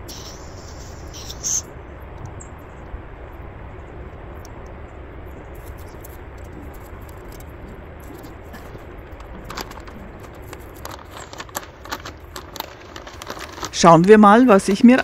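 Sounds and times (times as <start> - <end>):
steady background hiss: 0.0 - 15.0
rummaging through small items: 5.6 - 15.0.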